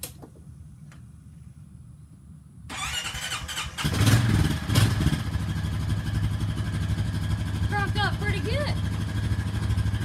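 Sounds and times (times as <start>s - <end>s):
electric starter cranking: 2.7s - 4.3s
engine idling: 2.7s - 10.0s.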